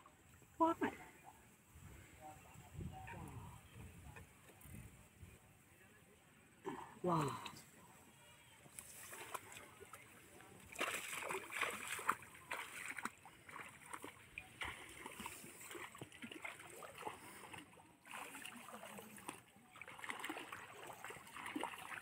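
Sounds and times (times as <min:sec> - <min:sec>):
footsteps wading through mud water: 0:08.6 - 0:22.0.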